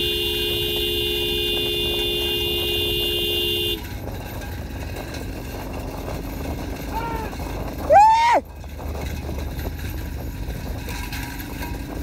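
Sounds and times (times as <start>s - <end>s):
vehicle horn two-tone blast: 0.0s - 3.9s
low rumble: 3.8s - 12.0s.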